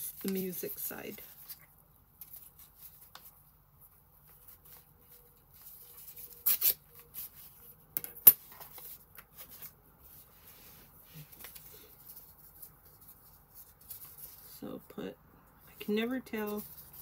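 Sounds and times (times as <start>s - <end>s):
paper rustling: 0.0s - 7.7s, 8.4s - 14.7s, 15.8s - 17.0s.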